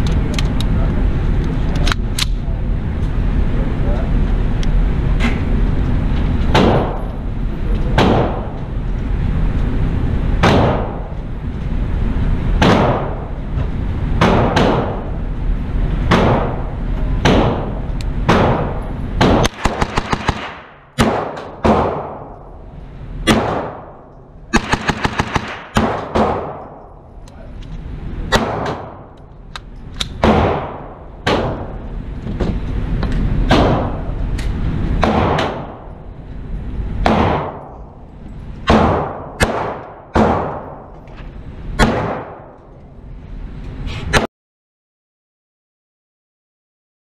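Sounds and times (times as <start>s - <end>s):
gunshots echoing indoors: 6.5s - 7.1s, 7.9s - 8.6s, 10.4s - 11.2s, 12.5s - 13.4s, 14.1s - 15.2s, 16.0s - 27.2s, 28.3s - 29.2s, 30.0s - 31.9s, 33.4s - 34.2s, 34.9s - 36.0s, 37.0s - 38.0s, 38.6s - 41.0s, 41.7s - 42.7s.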